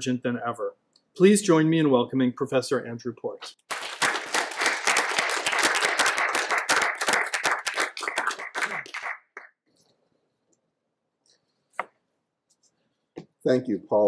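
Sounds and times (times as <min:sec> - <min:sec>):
audience applauding: 0:03.7 - 0:09.5.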